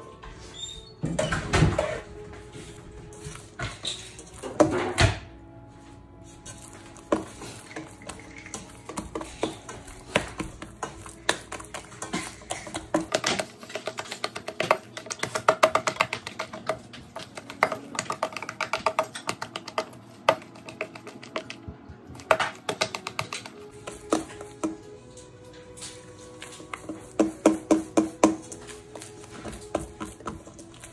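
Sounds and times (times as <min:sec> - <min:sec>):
dough slapping in a metal bowl: 0:06.5 - 0:24.9, 0:25.8 - 0:30.9.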